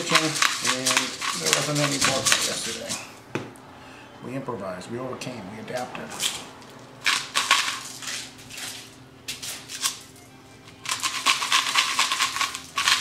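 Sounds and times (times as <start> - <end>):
aluminium foil crinkling: 0.0 - 3.0, 7.1 - 10.2, 10.8 - 13.0
seasoning shaker rattling: 0.0 - 3.0, 7.0 - 10.2, 10.8 - 13.0.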